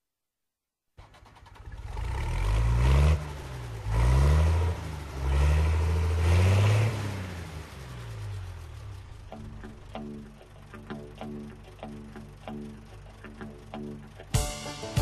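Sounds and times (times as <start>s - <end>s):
engine starting and revving: 1.0s - 9.3s.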